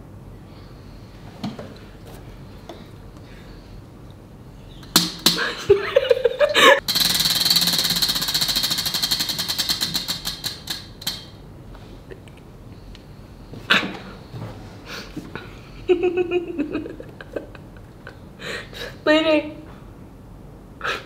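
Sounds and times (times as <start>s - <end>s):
wheel pointer clicking over pegs: 6.8s - 11.4s.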